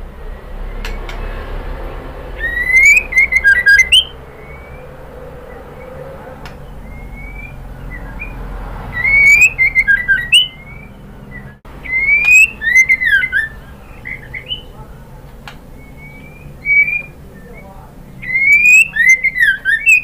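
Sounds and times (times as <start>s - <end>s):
bird song whistled phrases: 2.3s - 14.9s, 15.8s - 20.0s
soft rising bird whistles: 2.3s - 14.9s, 15.8s - 20.0s.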